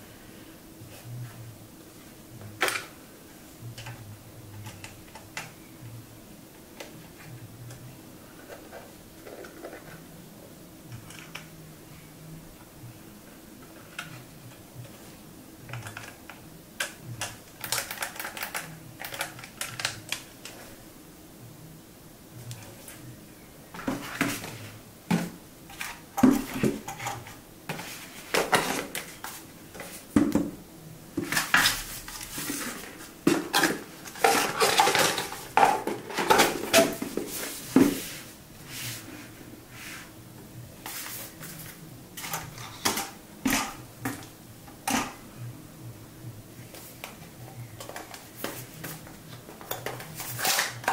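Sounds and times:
plastic parts clicking and tapping: 15.7 - 20.6.

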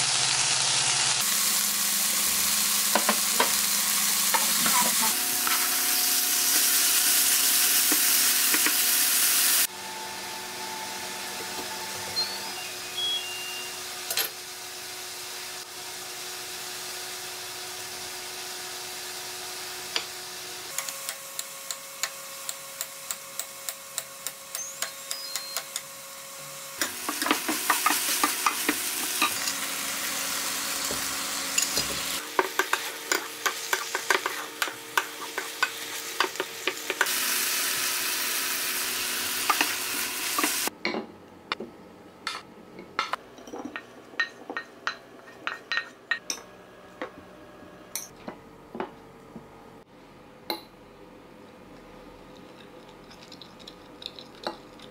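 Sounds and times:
food sizzling in a frying pan: 0.0 - 9.7, 11.1 - 40.7
spatula scraping a pan: 32.4 - 36.8.

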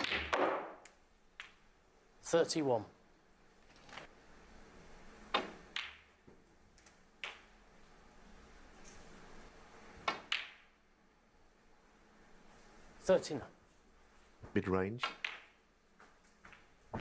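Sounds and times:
cue tip striking cue ball: 0.0 - 0.8
snooker balls clicking: 0.0 - 1.7, 5.3 - 7.6, 10.0 - 10.8, 15.0 - 16.8.

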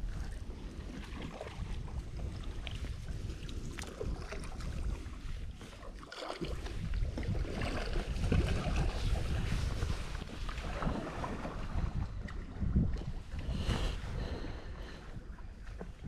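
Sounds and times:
small water splashes: 0.0 - 13.8
wind on microphone: 0.0 - 16.0
microphone handling rumble: 6.6 - 16.0.

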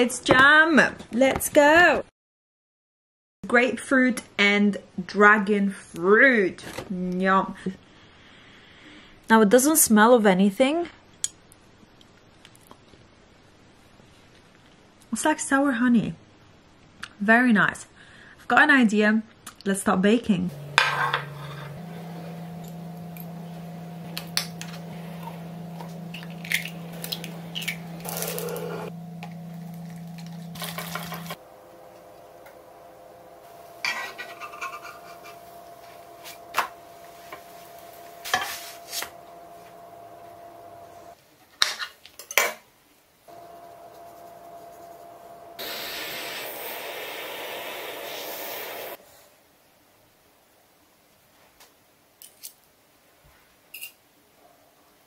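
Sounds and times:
low steady hum: 20.5 - 41.2, 43.3 - 49.0
metal utensils clinking and scraping: 20.6 - 21.9, 33.8 - 35.4
hiss: 45.6 - 49.0.

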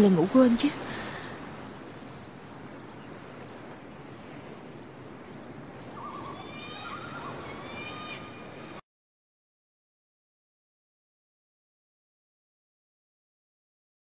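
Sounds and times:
surf: 0.0 - 8.8
wind: 0.0 - 8.8
short bird calls: 5.4 - 8.6.

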